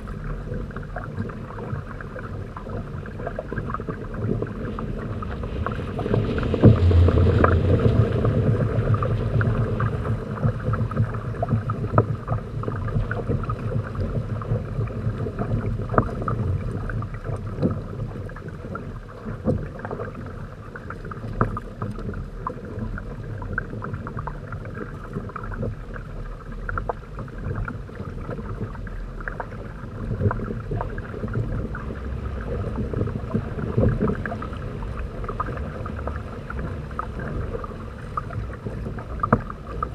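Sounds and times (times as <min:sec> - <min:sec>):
heavy low rumble: 0:00.0 - 0:17.9, 0:27.0 - 0:39.9
water splashing along hulls: 0:00.0 - 0:39.9.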